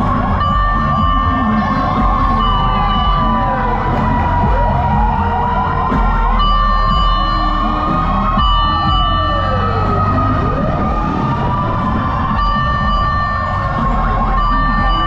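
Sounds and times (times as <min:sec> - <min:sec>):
high siren tones: 0:00.0 - 0:15.0
low rumble: 0:00.0 - 0:15.0
wailing fire truck siren: 0:00.0 - 0:15.0.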